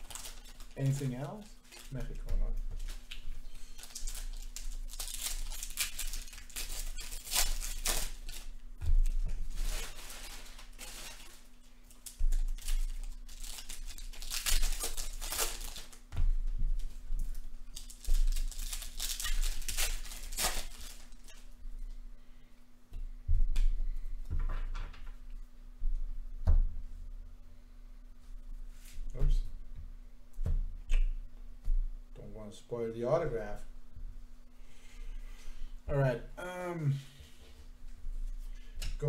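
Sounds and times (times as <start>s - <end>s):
wrappers tearing and crinkling: 0.0s - 16.1s, 16.8s - 21.6s
cards rustling and shuffling: 0.0s - 21.5s.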